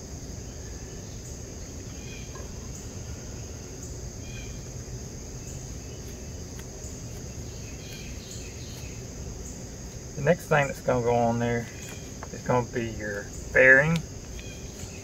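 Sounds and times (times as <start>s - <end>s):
high insect trill: 0.0s - 15.0s.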